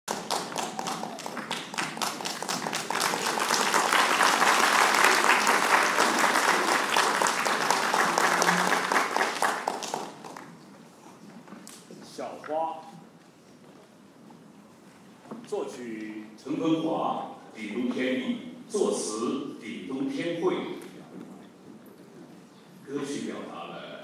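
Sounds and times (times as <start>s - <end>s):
audience applauding: 0.1s - 10.6s.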